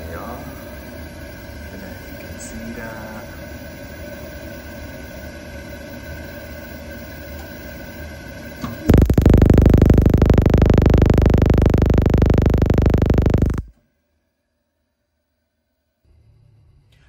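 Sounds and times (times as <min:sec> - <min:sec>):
steady hum: 0:07.8 - 0:13.7
boiler ignition sparking: 0:08.7 - 0:13.7.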